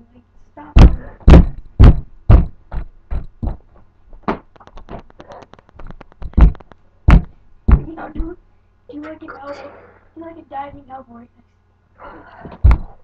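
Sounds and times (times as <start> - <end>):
thuds and knocks of scuffle: 0.8 - 5.1, 5.8 - 8.3, 12.5 - 13.0.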